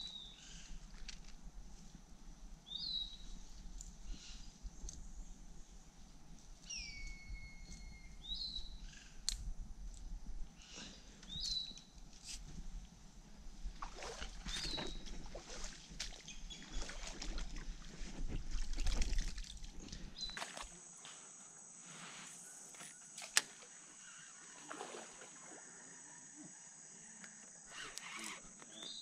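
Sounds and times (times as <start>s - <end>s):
rustling vegetation: 10.7s - 20.9s, 27.6s - 29.0s
shallow water sloshing: 13.7s - 20.7s, 24.6s - 25.6s
steady high hiss: 20.2s - 29.0s.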